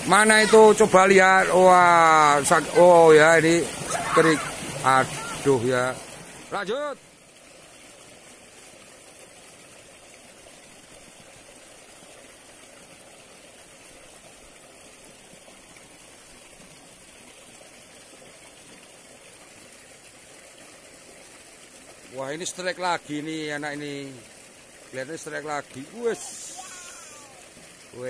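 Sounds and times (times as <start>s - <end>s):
water flowing in ditch: 0.0s - 28.0s.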